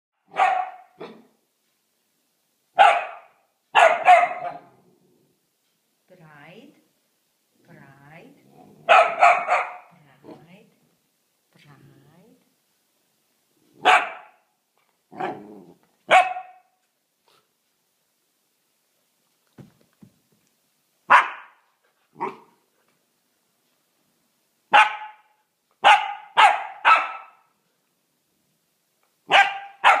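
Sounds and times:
puppy barking: 0.2 - 1.4, 2.8 - 4.8, 8.8 - 9.9, 13.8 - 14.5, 15.1 - 15.5, 16.1 - 16.8, 21.1 - 21.6, 22.2 - 22.6, 24.7 - 27.5, 29.3 - 30.0.

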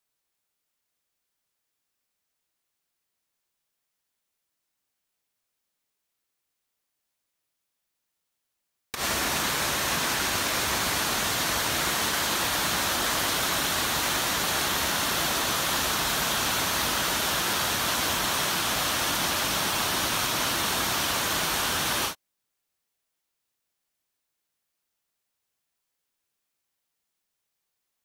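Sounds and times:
waterfall rushing over rocks: 9.0 - 22.2.

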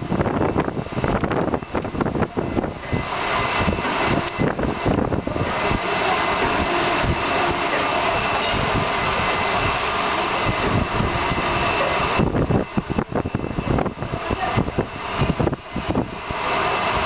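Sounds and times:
low thumps and rumbles: 0.0 - 5.8, 12.1 - 16.3
faint high whining tones: 0.0 - 17.0
steady machinery noise: 0.0 - 17.0.

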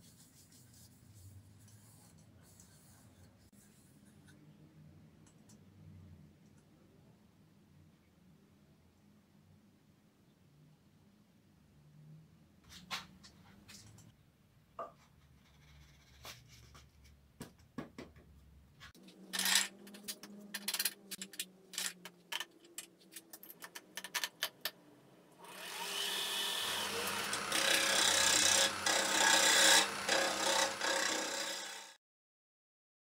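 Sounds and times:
gouge scraping spinning wood: 25.6 - 31.9.

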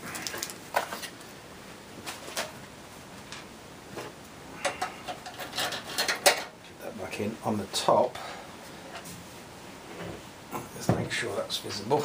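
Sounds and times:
clicks and knocks of computer parts: 4.0 - 6.6.

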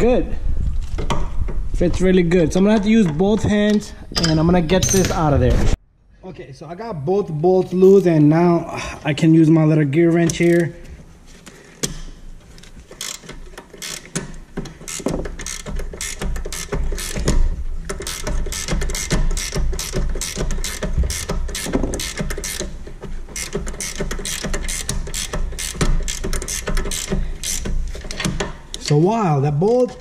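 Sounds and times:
ratcheting wrench clicking: 12.9 - 29.0.

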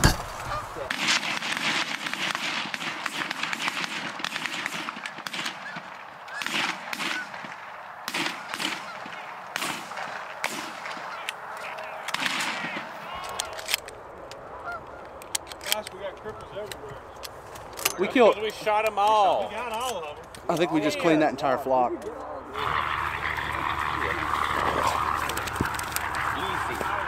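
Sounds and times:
shotgun shots: 0.0 - 11.3, 12.0 - 13.0
geese honking: 0.3 - 0.9, 4.2 - 13.6, 14.4 - 15.2, 22.5 - 27.0.

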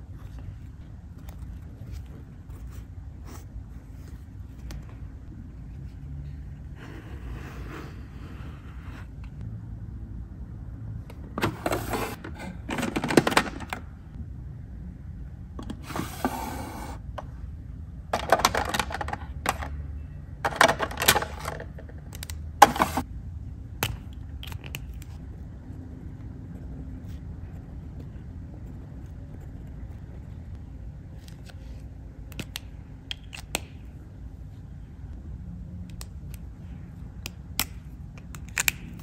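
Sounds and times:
pens rattling in plastic drawers: 11.4 - 13.9, 18.2 - 19.7, 20.4 - 22.0.

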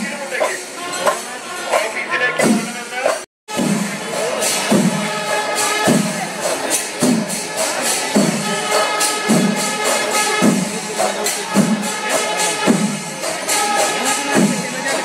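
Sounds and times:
cymbals clashing: 0.0 - 15.0
heavy drum strokes: 0.0 - 15.0.

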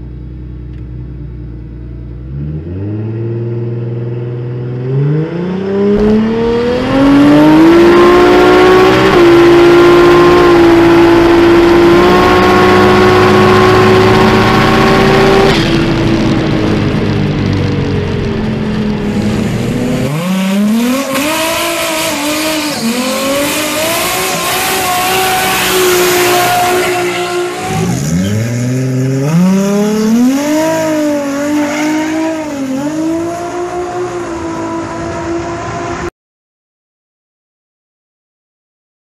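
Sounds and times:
car engine revving hard: 2.3 - 17.5, 18.4 - 36.1
tyres screeching: 21.8 - 29.2.

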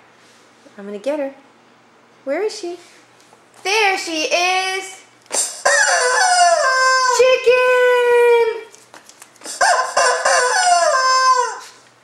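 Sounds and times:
rubber chicken toy squawking: 5.3 - 7.5, 9.4 - 11.8.

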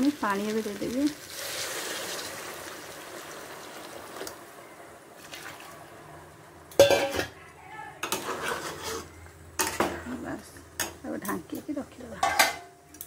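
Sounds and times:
water hissing in hot pot: 0.0 - 4.5.

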